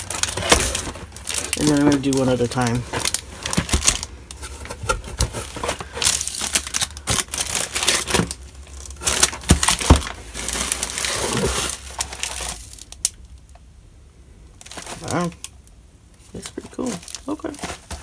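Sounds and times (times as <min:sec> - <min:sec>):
plastic wrapping crinkling: 0:00.0 - 0:13.6, 0:14.6 - 0:18.0
packages knocking on box: 0:03.0 - 0:04.0, 0:09.1 - 0:10.6.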